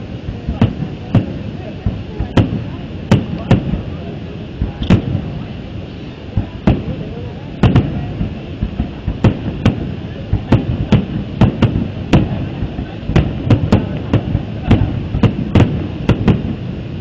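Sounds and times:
fireworks banging: 0:00.0 - 0:17.0.

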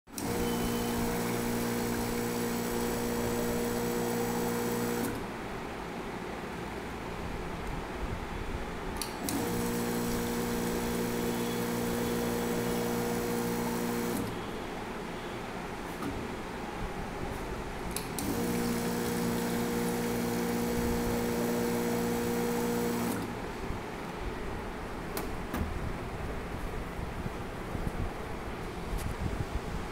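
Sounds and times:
electric pump humming: 0:00.1 - 0:05.4, 0:09.2 - 0:14.4, 0:18.0 - 0:23.5
liquid streaming into bottle: 0:18.5 - 0:21.3.

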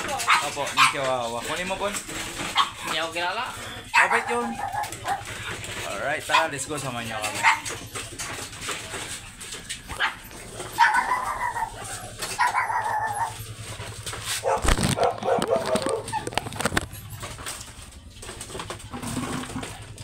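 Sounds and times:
dog whining and barking: 0:03.8 - 0:05.4, 0:09.8 - 0:16.6.

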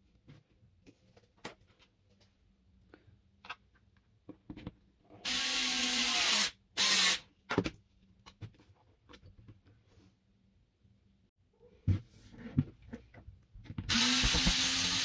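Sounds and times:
handheld power tool running: 0:13.9 - 0:15.0.

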